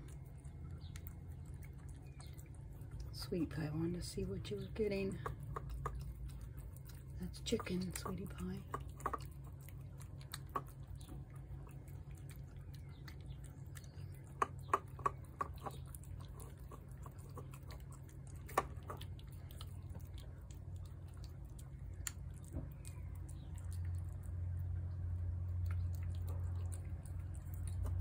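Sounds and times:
cats chewing wetly: 0.0s - 28.0s
steady low hum: 0.0s - 28.0s.

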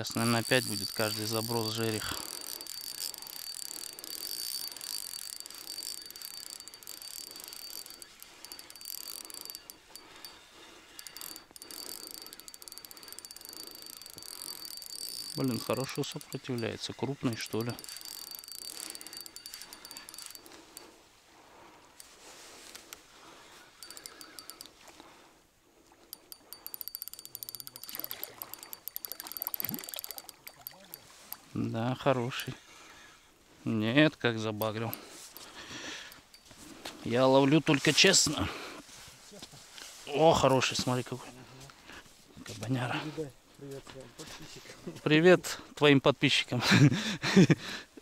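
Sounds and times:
cricket trill: 0.0s - 20.4s, 23.6s - 24.7s
fishing reel gears whirring: 0.0s - 20.9s, 23.6s - 24.8s, 26.1s - 31.5s, 34.6s - 36.6s.

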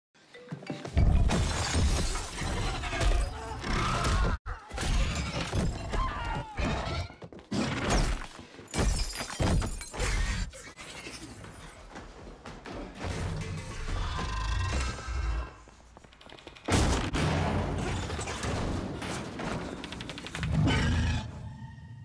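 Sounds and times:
glass shattering: 1.2s - 3.3s, 8.7s - 10.0s.

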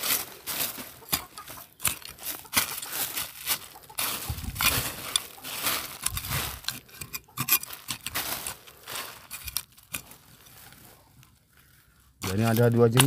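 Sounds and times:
plastic rubbish crinkling: 0.0s - 6.9s, 7.5s - 11.4s
machete hacking through soil: 1.1s - 6.6s.

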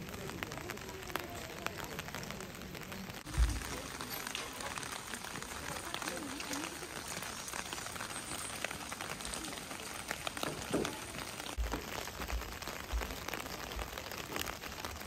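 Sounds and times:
steady rain falling: 0.0s - 15.0s
low thumps: 3.2s - 3.8s.

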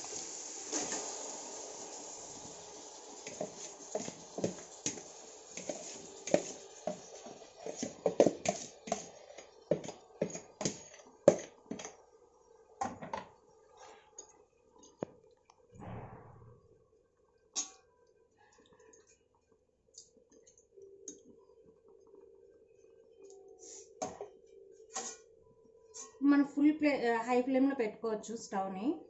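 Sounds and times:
faint hiss: 0.0s - 9.4s, 23.4s - 24.0s
spoon scraping and tapping bowl: 5.6s - 12.0s.

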